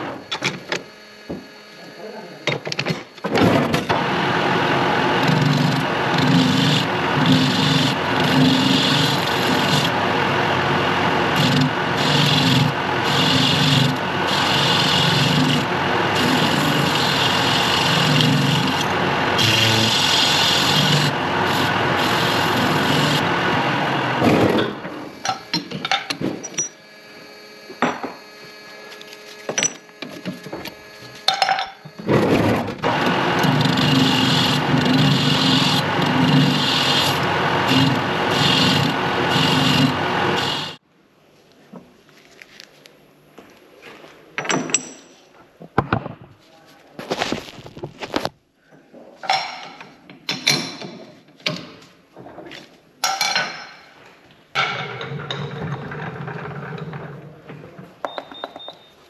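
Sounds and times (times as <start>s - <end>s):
machine running loudly: 0.0s - 25.6s, 29.9s - 40.8s
metal parts and tools clinking: 25.3s - 26.8s, 44.4s - 45.3s.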